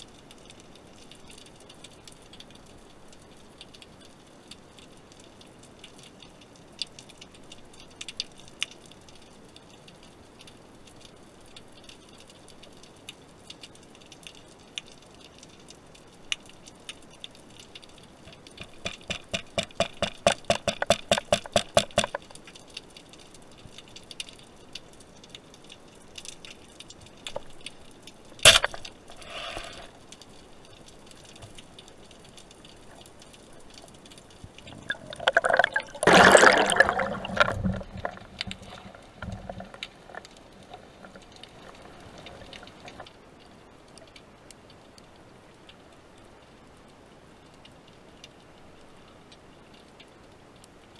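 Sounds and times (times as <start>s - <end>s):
underwater clicks and crackle: 0.0s - 50.9s
speargun shot: 28.5s - 28.8s.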